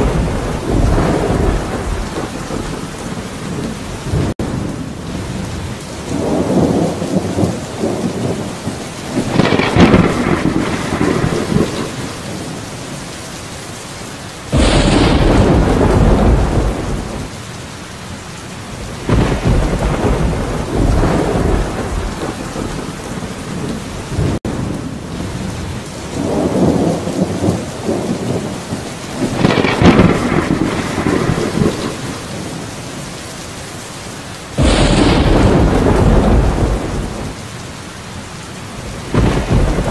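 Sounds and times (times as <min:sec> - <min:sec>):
loud thunderclap: 0:00.0 - 0:04.7, 0:06.1 - 0:12.4, 0:14.5 - 0:17.3, 0:19.0 - 0:24.7, 0:26.2 - 0:32.6, 0:34.6 - 0:37.4, 0:38.8 - 0:39.9
rolling thunder: 0:00.0 - 0:12.6, 0:14.5 - 0:17.4, 0:18.8 - 0:32.7, 0:34.6 - 0:37.6, 0:38.8 - 0:39.9
heavy rain: 0:00.0 - 0:39.9.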